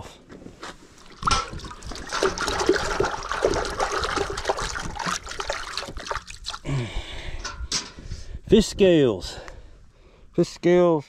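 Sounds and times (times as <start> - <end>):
water splashing and trickling: 0.9 - 6.9.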